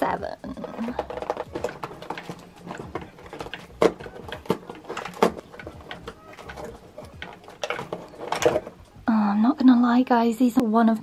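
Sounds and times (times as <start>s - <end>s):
fingernails tearing cardboard: 0.8s - 8.7s.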